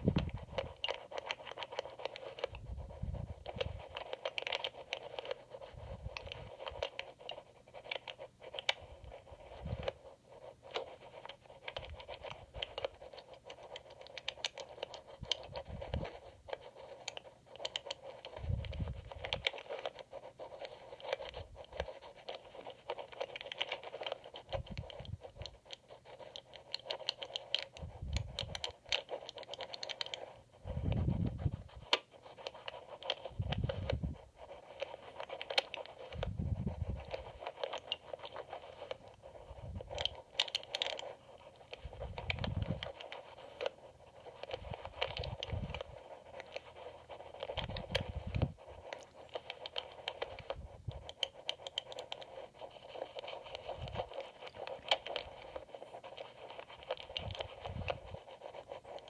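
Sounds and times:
lock pick scratching and clicking: 31.8 - 43.7.

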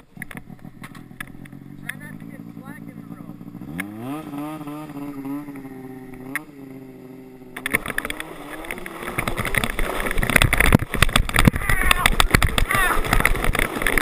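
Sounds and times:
snowmobile engine revving: 0.0 - 14.0
plastic sled scraping over icy snow: 7.6 - 14.0.

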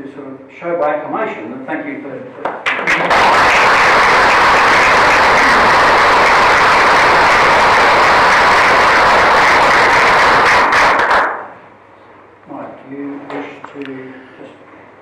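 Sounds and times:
audience applauding: 2.7 - 11.5.

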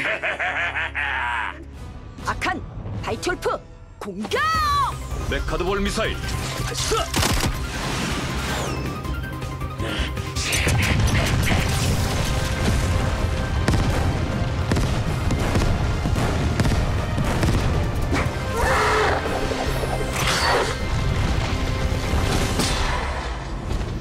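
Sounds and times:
background music: 0.0 - 24.0
cartoon explosions: 10.4 - 12.9.

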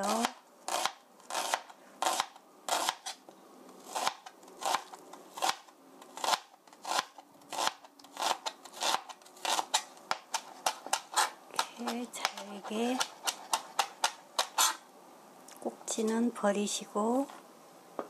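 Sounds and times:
knife chopping on cutting board: 6.2 - 14.8.

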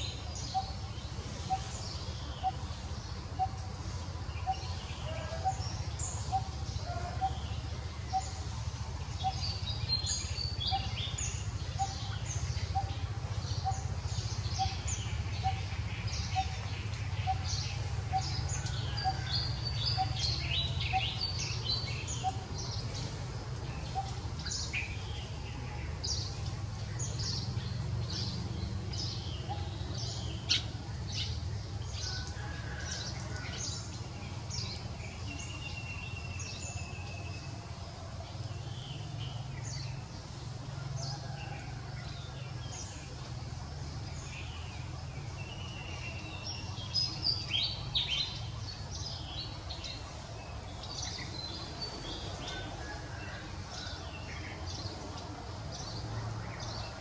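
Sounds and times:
birds chirping: 0.0 - 57.0.

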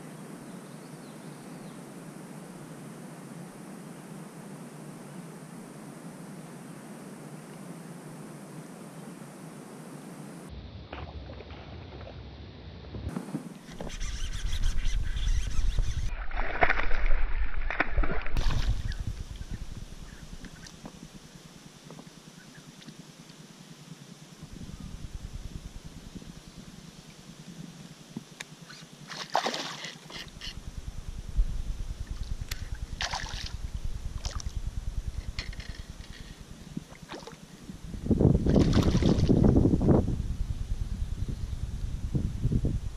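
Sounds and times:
low wind rumble: 12.4 - 21.6, 24.4 - 27.7, 30.2 - 42.9
fish splashing in water: 29.1 - 30.1, 33.0 - 33.6, 38.5 - 39.4.

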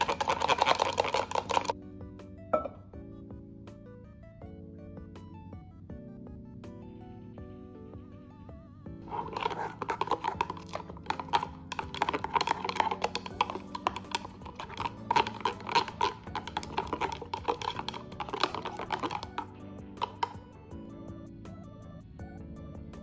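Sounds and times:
chopsticks clattering against plastic: 0.0 - 1.7, 9.1 - 19.4.

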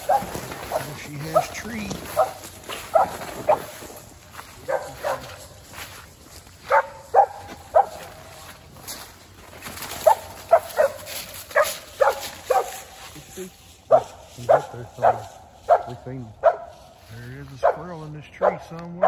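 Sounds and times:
dog barking: 0.0 - 4.0, 4.6 - 5.6, 6.6 - 8.3, 10.0 - 12.9, 13.9 - 16.8, 17.6 - 19.0.

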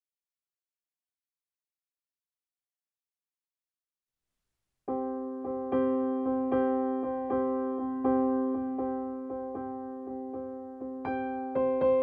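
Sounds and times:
electric piano chords: 4.9 - 12.0.

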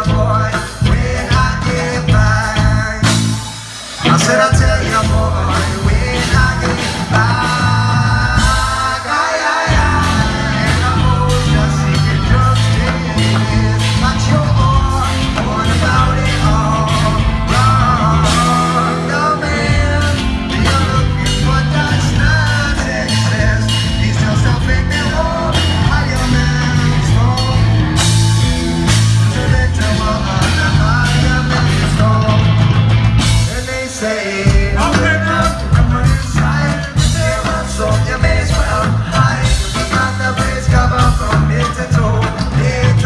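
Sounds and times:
drums: 0.0 - 43.0
lead vocal singing: 0.0 - 43.0
live rock band playing: 0.0 - 43.0.

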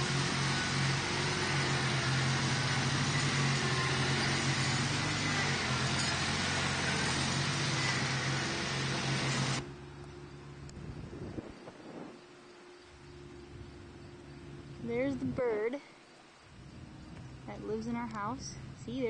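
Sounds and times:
garden tractor engine running: 0.0 - 11.5, 16.5 - 19.0.

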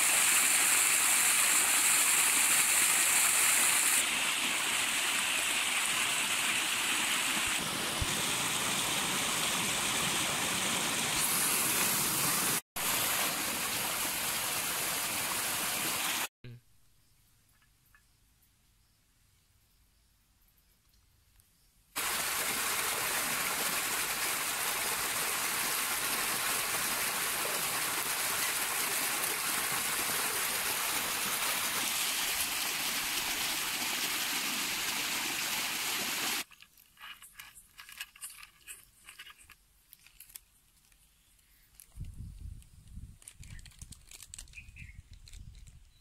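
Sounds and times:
water gushing into a tank: 22.0 - 36.5
spice packet rustling: 36.4 - 42.0, 43.1 - 46.0.

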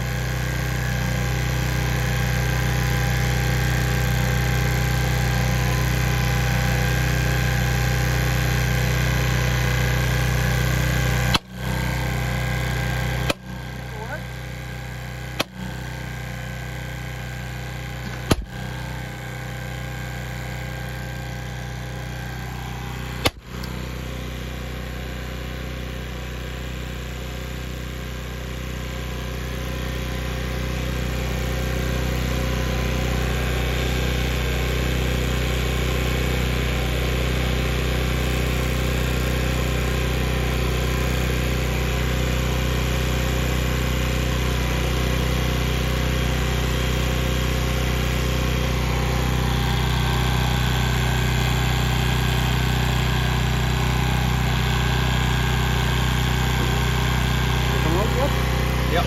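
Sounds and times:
engine humming: 17.7 - 19.1.

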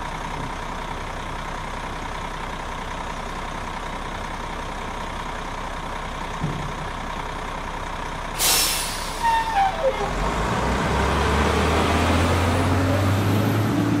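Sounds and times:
truck engine droning: 0.0 - 14.0
air hiss burst: 8.4 - 9.4.

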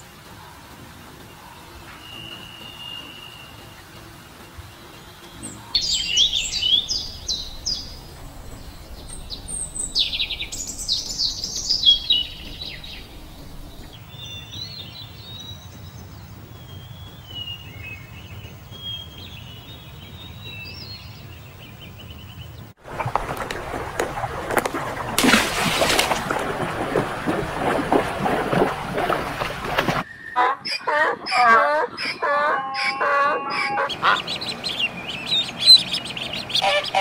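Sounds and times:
small birds chirping: 1.2 - 26.5, 28.5 - 37.0
water splashing loudly: 22.8 - 30.0.

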